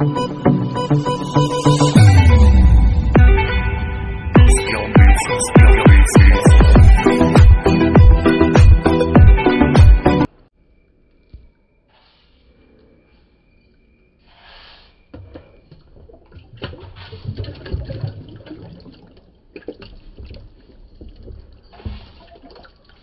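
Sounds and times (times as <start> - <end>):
water sloshing in a plastic tub: 15.0 - 23.0.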